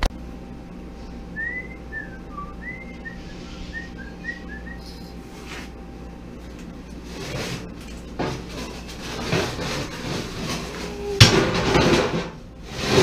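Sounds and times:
low hum: 0.0 - 13.0
person whistling a tune: 1.4 - 5.1.

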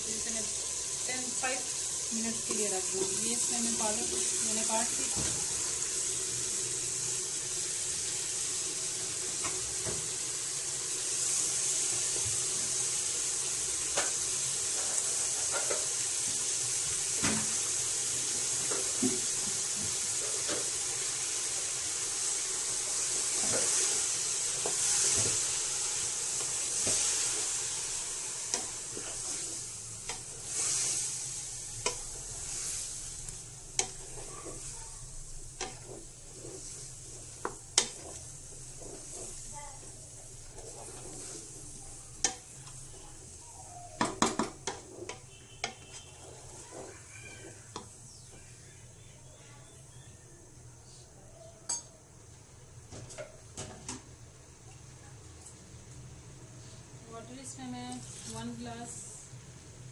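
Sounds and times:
food sizzling in a pot: 0.0 - 50.6, 51.4 - 59.9.

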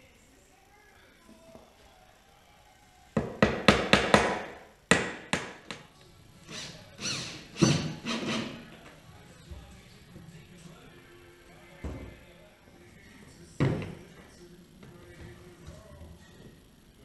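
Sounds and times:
hammer striking wood: 3.2 - 5.8.

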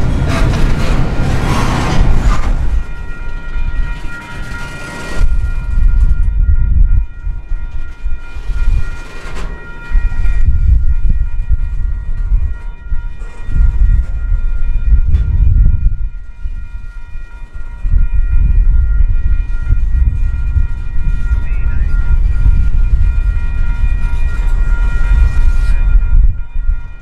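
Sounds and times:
freight train wheels rumbling: 0.0 - 27.0
high ringing: 0.0 - 27.0.

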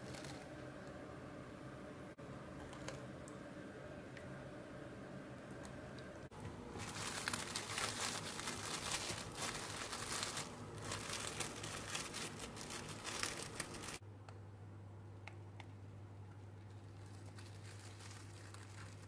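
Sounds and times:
cling film crinkling: 0.0 - 1.0, 6.7 - 14.0, 16.7 - 19.0.

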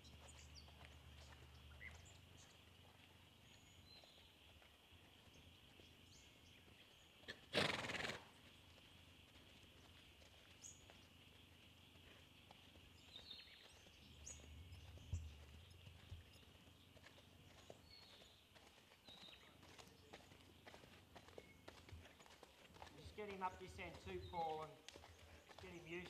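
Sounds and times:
horse snorting: 7.3 - 8.3.

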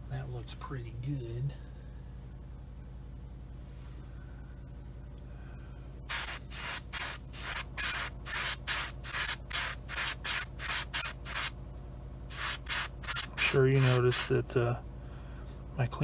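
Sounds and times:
airbrush spraying bursts: 6.1 - 11.6, 12.3 - 14.4.

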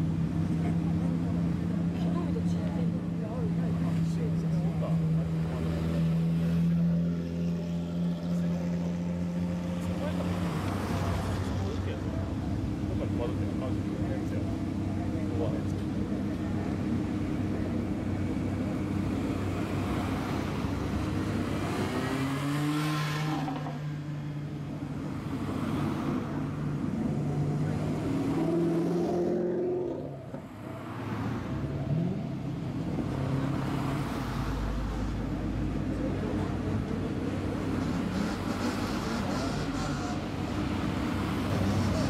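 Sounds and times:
cars driving slowly past: 0.0 - 42.0
car engine revving: 14.2 - 34.5.

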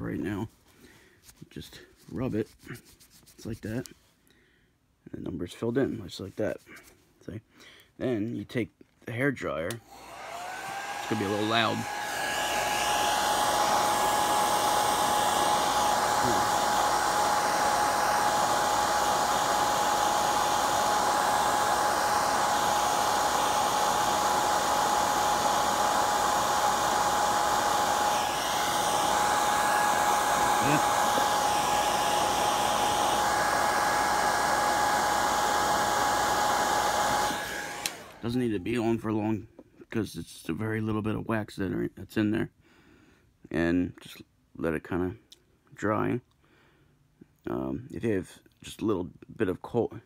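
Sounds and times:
hair dryer running: 9.7 - 38.5.

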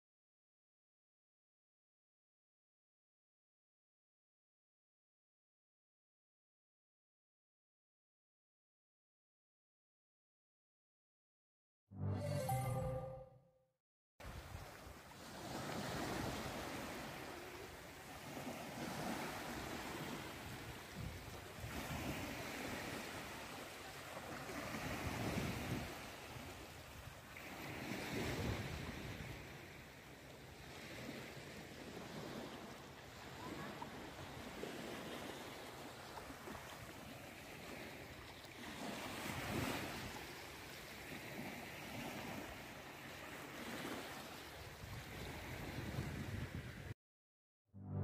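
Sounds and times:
sea waves washing in: 14.2 - 46.9
wind on microphone: 18.3 - 23.0, 24.5 - 29.5, 44.8 - 46.9.

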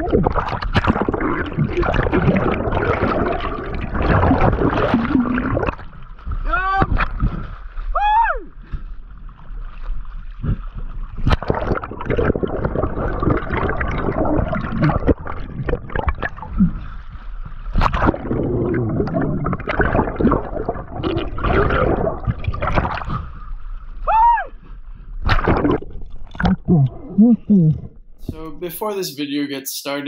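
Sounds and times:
clicks and bubbly spatters: 0.0 - 7.5, 9.9 - 17.0, 17.6 - 23.3, 25.2 - 28.5
seawater sloshing and splashing: 0.0 - 27.1.

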